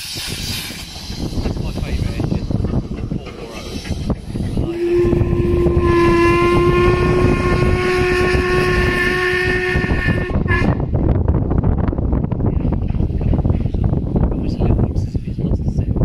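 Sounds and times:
locomotive rumbling on track: 0.0s - 16.0s
steam locomotive whistle: 4.6s - 10.8s.

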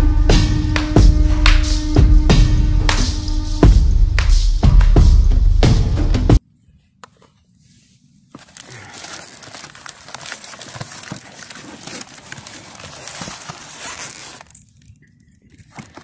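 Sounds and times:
cardboard and paper rustling: 7.1s - 16.0s.

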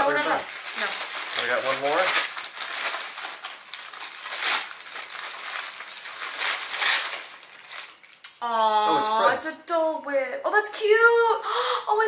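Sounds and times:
tissue paper crinkling: 0.0s - 8.2s.

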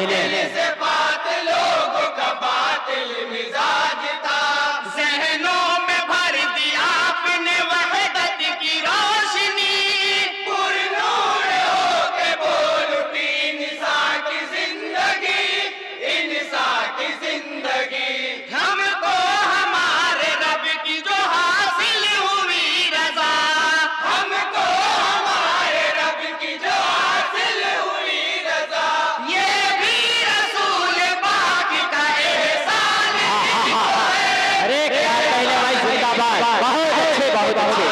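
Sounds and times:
men singing in chorus: 0.0s - 37.9s.

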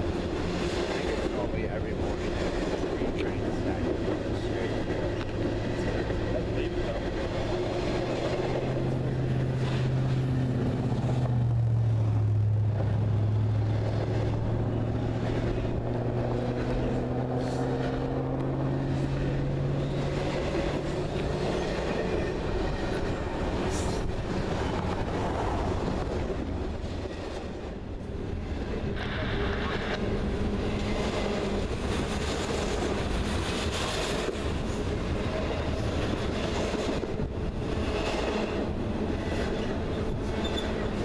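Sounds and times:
steel wheels on rails: 0.0s - 41.0s.

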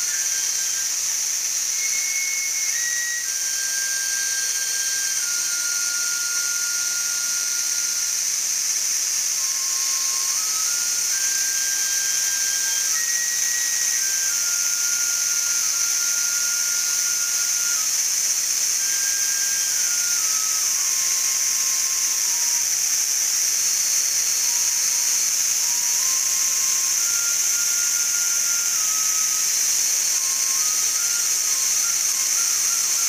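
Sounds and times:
bamboo flute melody: 0.0s - 33.0s
cicadas chorus: 0.0s - 33.0s.

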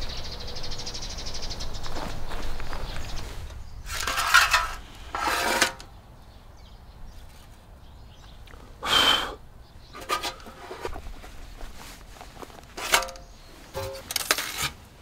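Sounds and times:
metal tray scraping: 3.9s - 5.9s, 10.0s - 11.0s, 12.7s - 14.8s.

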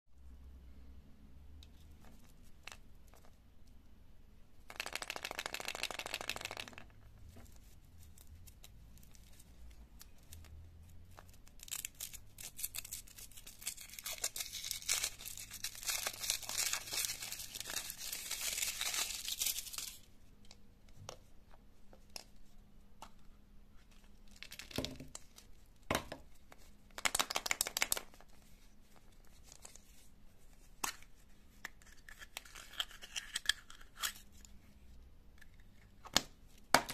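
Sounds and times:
foil wrapper crinkling and tearing: 11.5s - 20.1s.

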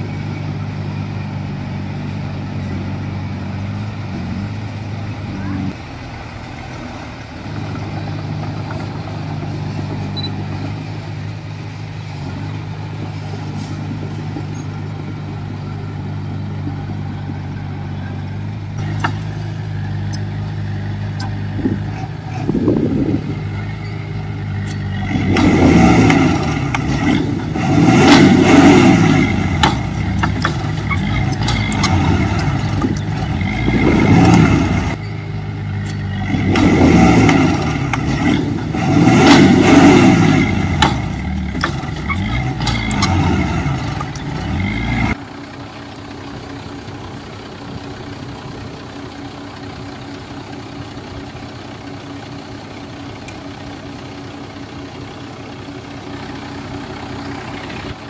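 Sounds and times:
bulldozer diesel engine running: 0.0s - 58.0s
sharp metal clanks: 18.8s - 19.4s, 29.0s - 33.5s, 40.7s - 44.5s.

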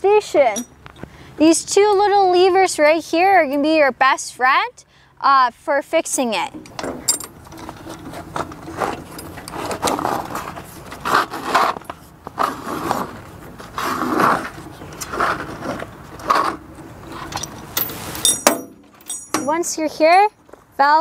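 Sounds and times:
tire levers scraping bicycle rim: 6.6s - 20.3s.

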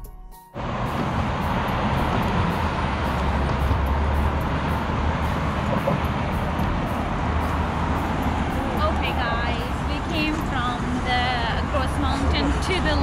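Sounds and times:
road traffic rumble: 0.6s - 13.0s.

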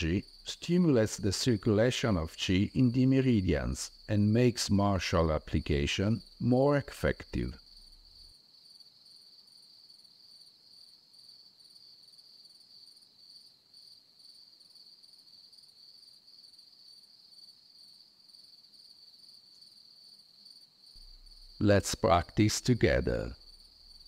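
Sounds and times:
crickets trilling: 0.0s - 24.0s.

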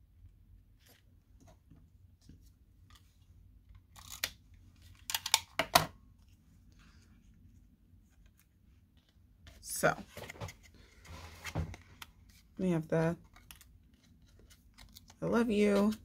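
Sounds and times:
paper card scraping and snapping: 3.9s - 5.4s, 13.2s - 16.0s.

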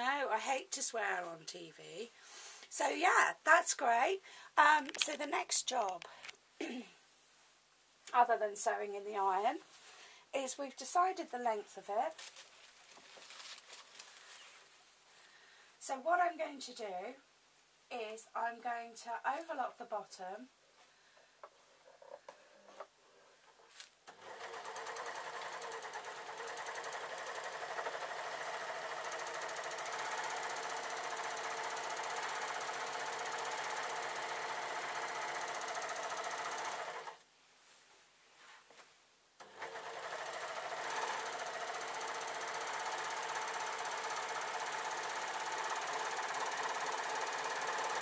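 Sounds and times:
overlocker sewing machine running: 24.1s - 37.2s, 39.4s - 48.0s.

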